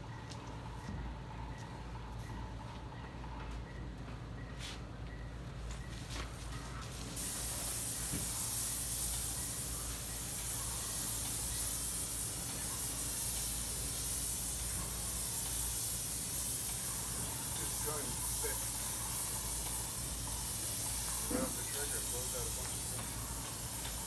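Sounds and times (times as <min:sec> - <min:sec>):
paint sprayer hissing: 0:06.3 - 0:24.0.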